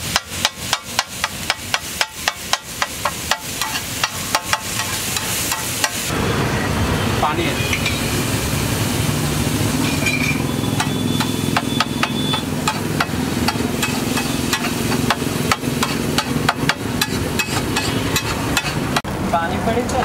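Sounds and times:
metal spatula striking griddle: 0:00.0 - 0:06.1, 0:09.8 - 0:19.0.

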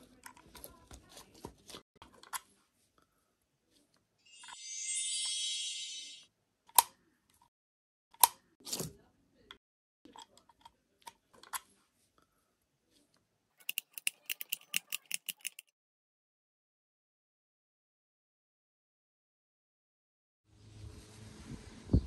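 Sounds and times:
metal key clicks and taps: 0:13.6 - 0:15.7.

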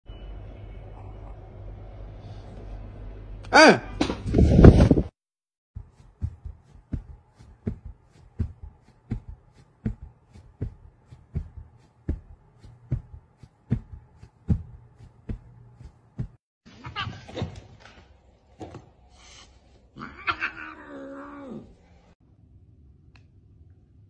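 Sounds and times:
hand patting a cat: 0:06.1 - 0:16.4.

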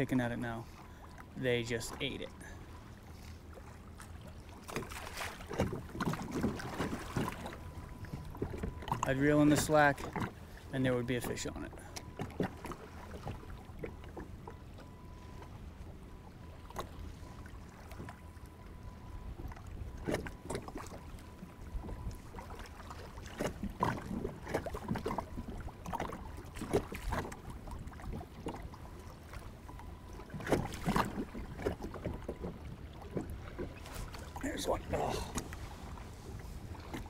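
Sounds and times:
low steady rumble: 0:00.0 - 0:37.0
water slapping against kayak hull: 0:04.5 - 0:10.4, 0:19.4 - 0:35.7.

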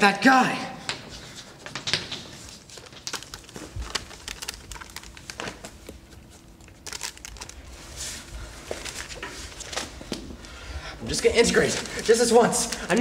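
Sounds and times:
paper rustling and crinkling: 0:01.7 - 0:10.2.

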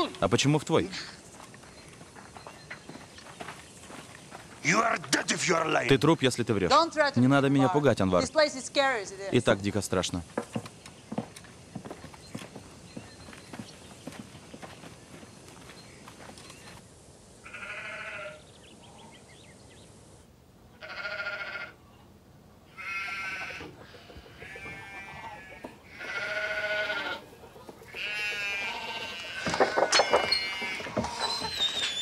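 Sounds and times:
livestock bleating: 0:17.4 - 0:18.4, 0:20.8 - 0:21.8, 0:22.7 - 0:27.3, 0:27.9 - 0:31.4.

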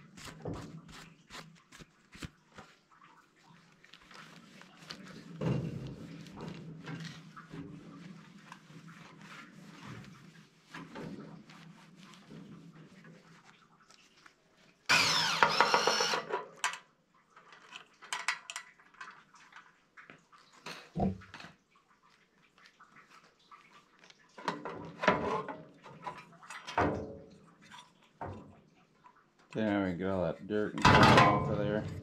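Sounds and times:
towel wiping and rustling: 0:00.0 - 0:14.9, 0:22.0 - 0:24.3.

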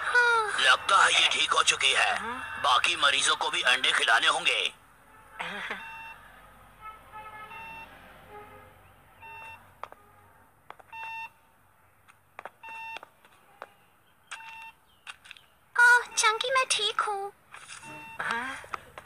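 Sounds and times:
short electronic beeps: 0:02.3 - 0:02.8, 0:05.8 - 0:06.2, 0:11.0 - 0:11.4, 0:14.3 - 0:14.8, 0:15.8 - 0:16.7, 0:17.7 - 0:18.3.

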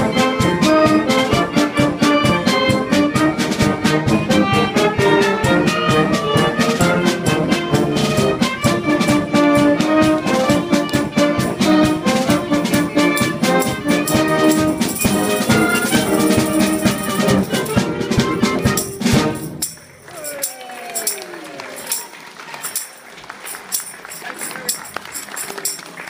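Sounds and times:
brass band playing: 0:00.0 - 0:23.0.

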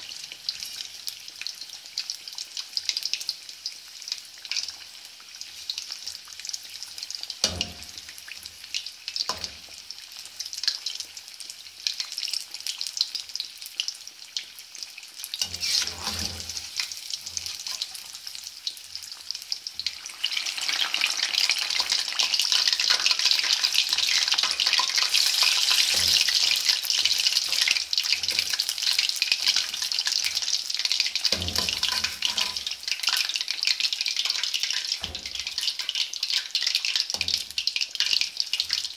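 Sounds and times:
fish deep-frying in hot oil: 0:00.0 - 0:38.9
spoon knocking in pan: 0:07.4 - 0:08.0, 0:31.3 - 0:32.7.

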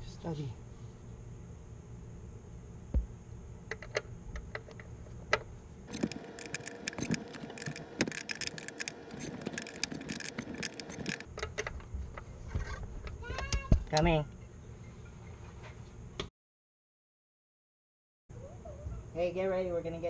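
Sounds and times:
ratcheting wrench clicking: 0:05.9 - 0:11.3.

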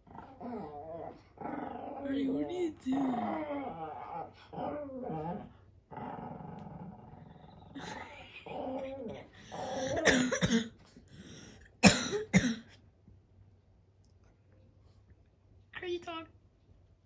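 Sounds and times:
small dog growling: 0:00.0 - 0:10.1.

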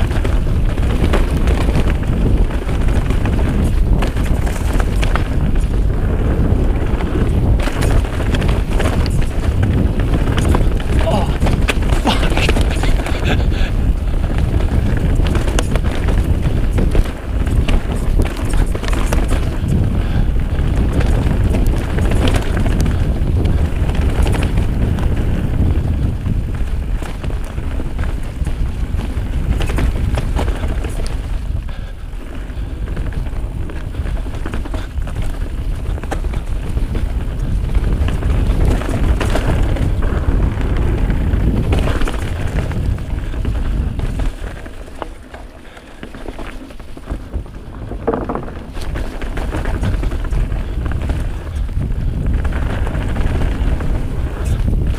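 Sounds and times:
bike knocking and rattling: 0:00.0 - 0:54.9
tyre rumble on dirt: 0:00.0 - 0:54.9
wind rushing over microphone: 0:00.0 - 0:54.9.

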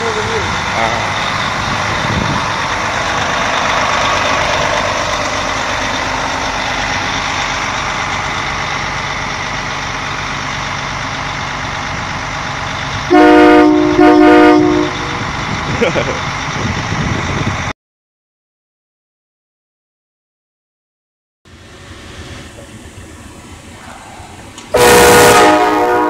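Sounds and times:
fire engine idling: 0:00.0 - 0:17.7, 0:21.5 - 0:26.0
loud horn blasts: 0:13.1 - 0:15.2, 0:24.7 - 0:26.0.

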